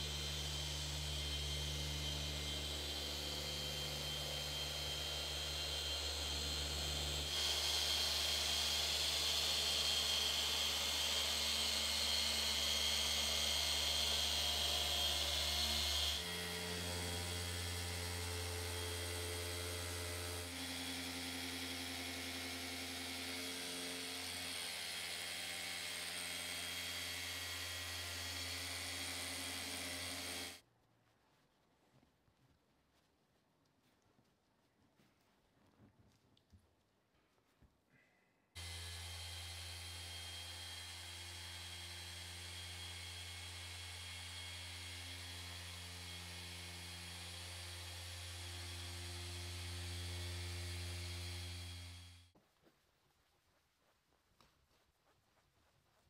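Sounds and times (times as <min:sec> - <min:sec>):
electric polisher motor hum: 0:00.0 - 0:30.6, 0:38.6 - 0:52.4.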